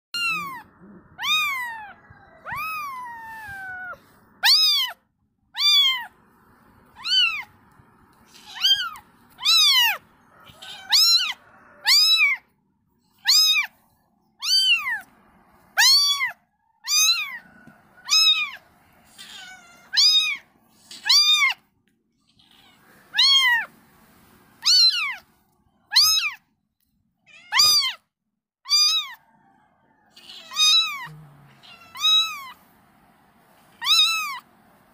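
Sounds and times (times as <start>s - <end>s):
cat meowing: 0.2s - 5.0s, 5.6s - 6.2s, 6.9s - 7.6s, 8.2s - 12.5s, 13.2s - 13.8s, 14.4s - 15.1s, 15.7s - 21.7s, 22.3s - 23.7s, 24.6s - 26.4s, 27.3s - 28.1s, 28.7s - 29.2s, 30.1s - 32.6s, 33.7s - 34.5s.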